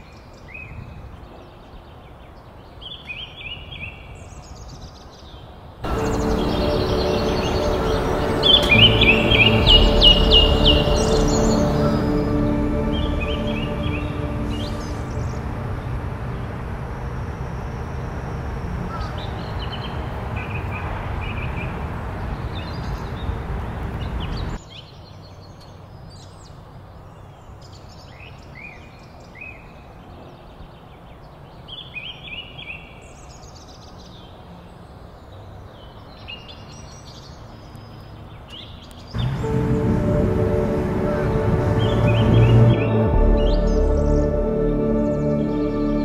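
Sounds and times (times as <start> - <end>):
low rumble: 5.8 - 19.0, 39.2 - 46.0.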